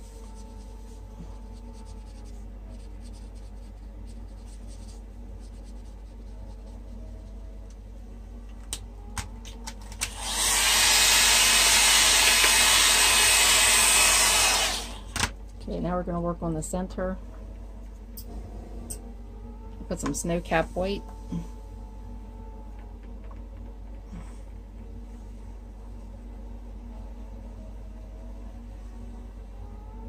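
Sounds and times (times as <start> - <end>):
marker scratching on paper: 1.9 - 6.9
hair dryer blowing: 10.0 - 15.2.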